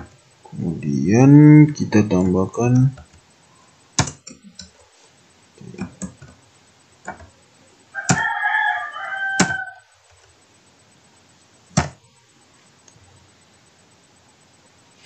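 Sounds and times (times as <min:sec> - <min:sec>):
rooster crowing: 0:07.9 - 0:10.0.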